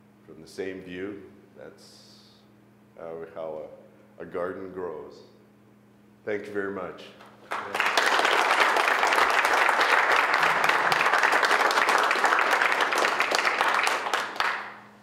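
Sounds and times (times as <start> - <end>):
audience applauding: 7.5 - 14.9.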